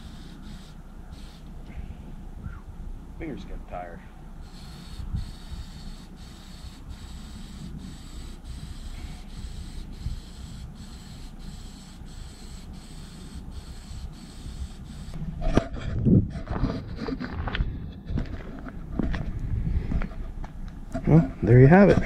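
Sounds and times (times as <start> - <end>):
aerosol spray can hissing: 0.0 - 1.5, 4.4 - 15.2
low wind rumble: 0.0 - 11.1, 12.5 - 22.0.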